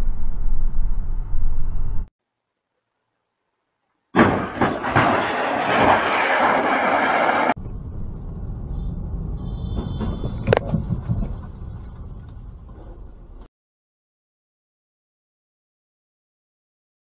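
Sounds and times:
car collision bang: 0:04.2 - 0:07.6
road rumble: 0:04.2 - 0:13.5.

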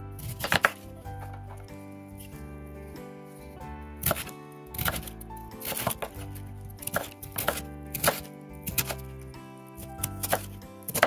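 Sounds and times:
knife chopping vegetable on wooden board: 0:00.2 - 0:01.7, 0:04.0 - 0:09.2, 0:09.8 - 0:11.0.

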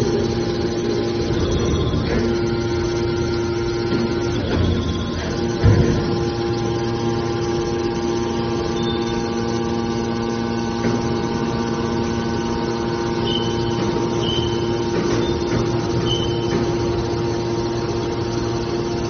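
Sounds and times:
hydraulic power unit hum: 0:00.0 - 0:19.0
short high-pitched tones: 0:12.9 - 0:16.8.

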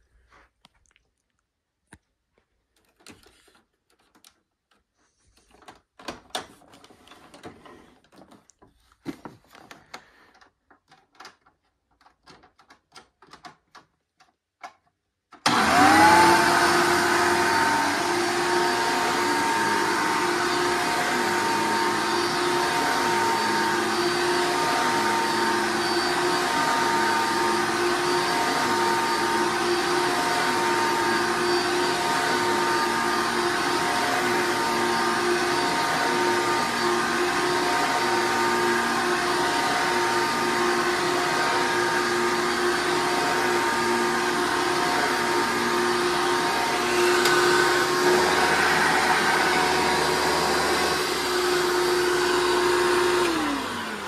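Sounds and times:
vacuum motor running: 0:15.4 - 0:54.0.

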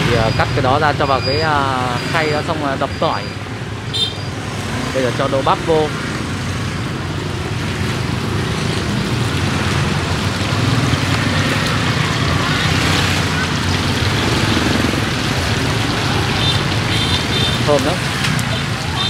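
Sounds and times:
okra sizzling in hot oil: 0:06.3 - 0:18.9.

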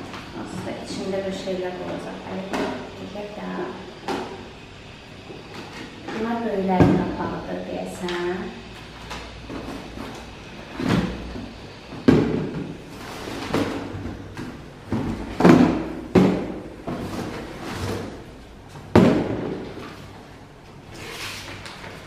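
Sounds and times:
plastic containers clattering: 0:09.0 - 0:20.2.

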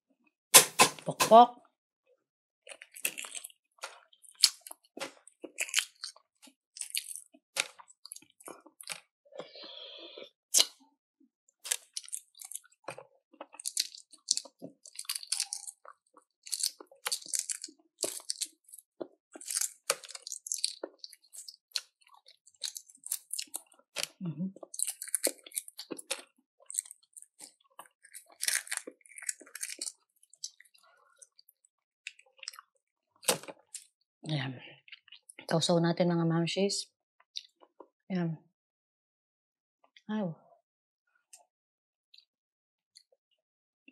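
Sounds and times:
person chewing crunchy food: 0:02.6 - 0:10.9, 0:11.6 - 0:34.0.

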